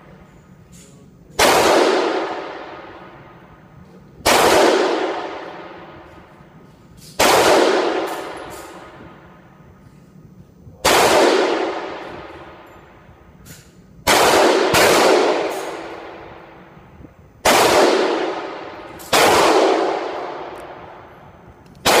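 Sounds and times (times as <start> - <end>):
pistol shots with echo: 1.3 - 6.4, 7.0 - 9.4, 10.8 - 13.1, 14.0 - 16.8, 17.4 - 21.2.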